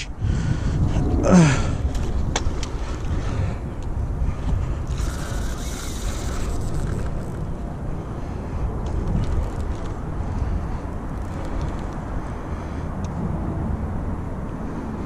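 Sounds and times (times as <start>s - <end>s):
wind buffeting microphone: 0.0s - 15.0s
person grunting: 1.2s - 1.8s.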